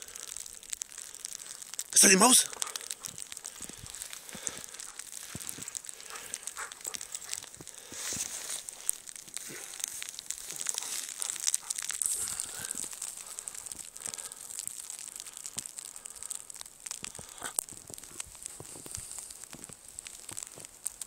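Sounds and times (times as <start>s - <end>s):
footsteps crunching in snow: 2.4s - 13.8s, 17.8s - 20.7s.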